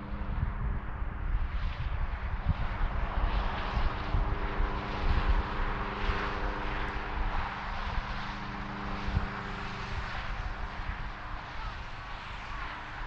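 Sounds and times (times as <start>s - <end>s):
engine droning steadily: 0.0s - 13.0s
traffic rushing past: 0.0s - 13.0s.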